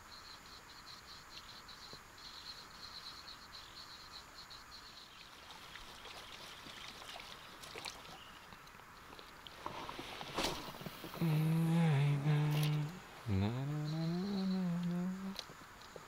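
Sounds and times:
crickets chirping: 0.0s - 16.0s
water splashing and gurgling: 5.2s - 15.5s
light ticks: 14.3s - 16.0s.

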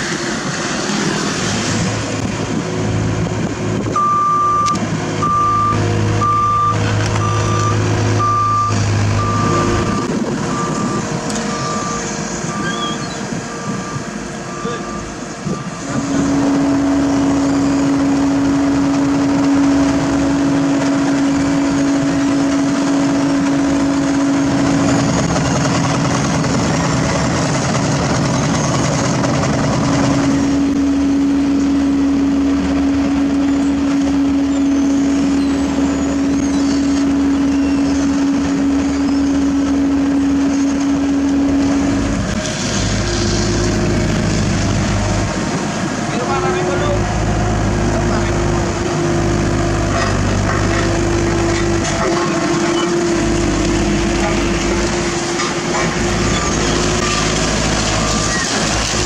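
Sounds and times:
asphalt roller drone: 0.0s - 59.0s
constant machine hum: 8.8s - 59.0s.

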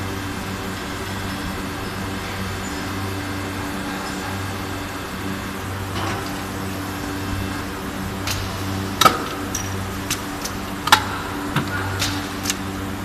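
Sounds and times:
machine humming: 0.0s - 13.0s
mould clicks and clanks: 8.2s - 12.7s.

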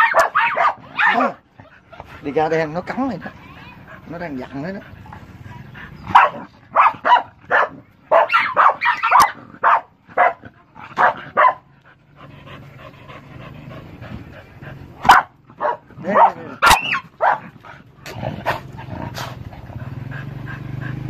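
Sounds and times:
dog barking: 0.0s - 1.4s, 6.1s - 11.7s, 15.0s - 17.5s.

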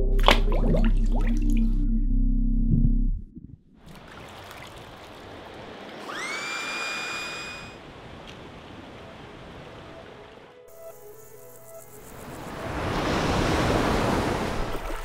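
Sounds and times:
river water rushing: 3.9s - 10.6s, 12.2s - 15.0s.

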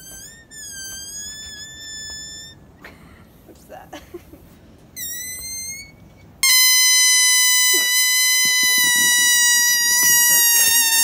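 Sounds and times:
balloon squealing: 0.0s - 2.6s, 5.0s - 11.0s.

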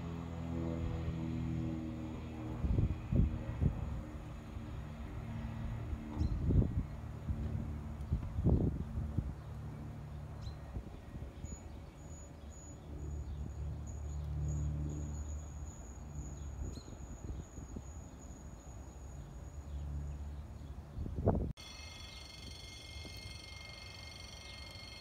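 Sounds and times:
electric train rumble: 21.6s - 25.0s
thin high whine: 21.6s - 25.0s.

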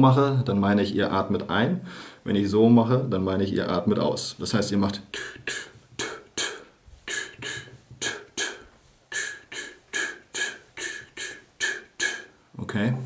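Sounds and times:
man huffing rhythmic breaths: 1.8s - 2.3s, 5.0s - 12.6s.

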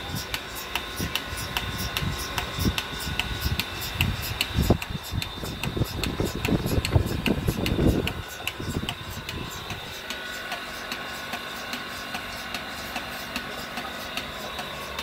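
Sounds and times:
pulsator clicking: 0.0s - 15.0s
vacuum pump hum: 0.0s - 15.0s
heavy low rumble: 1.0s - 10.1s.

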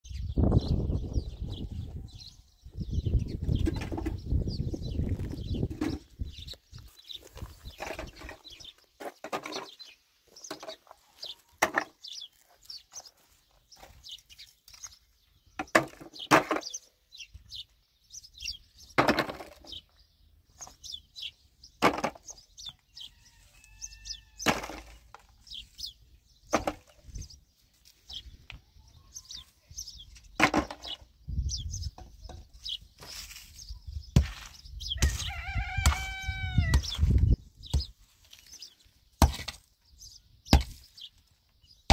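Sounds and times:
chicken calling: 23.0s - 24.4s, 35.0s - 37.1s
axe striking stony ground: 39.2s - 39.7s, 40.5s - 40.8s.

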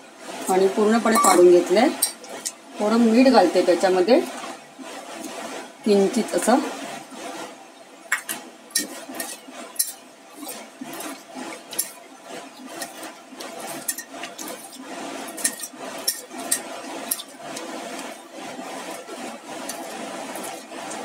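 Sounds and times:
potato slices tossed in metal pan: 8.1s - 21.0s.

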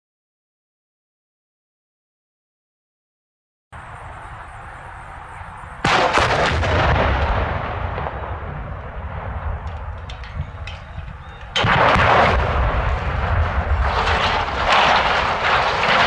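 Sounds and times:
explosive blasts with rumble: 5.8s - 16.0s.

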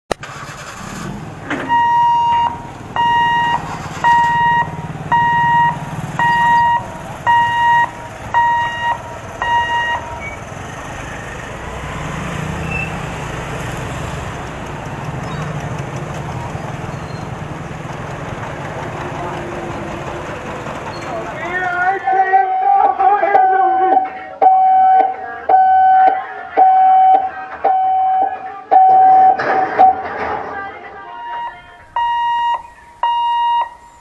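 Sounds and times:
motorbike and car engines: 0.1s - 23.2s
crossing warning buzzer beeping: 1.6s - 11.5s, 22.4s - 30.0s, 31.1s - 34.0s.

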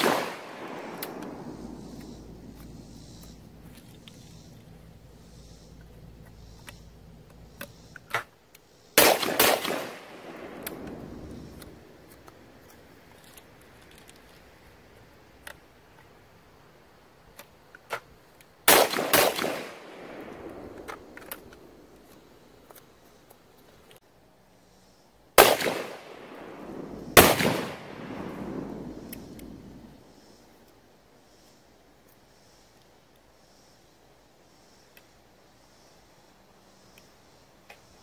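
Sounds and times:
gun action clicks: 0.0s - 1.4s
shotgun shots with echo: 0.0s - 2.0s, 9.0s - 11.6s, 18.7s - 21.1s, 25.4s - 29.6s.

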